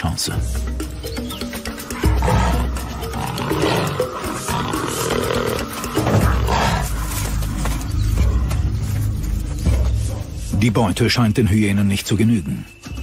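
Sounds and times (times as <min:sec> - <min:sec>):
low steady music: 0:00.0 - 0:13.0
wild animals calling: 0:01.1 - 0:08.4.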